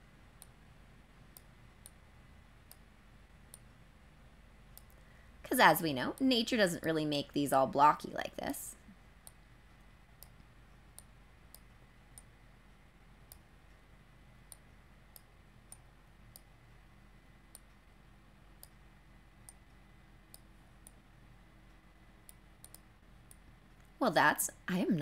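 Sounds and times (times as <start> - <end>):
low room hum: 0.0 - 25.0
computer mouse clicks: 1.3 - 2.0, 2.6 - 2.9, 3.5 - 3.8, 4.7 - 5.1, 9.2 - 12.4, 13.2 - 13.8, 14.4 - 16.5, 17.5 - 17.8, 18.5 - 18.8, 22.2 - 23.9.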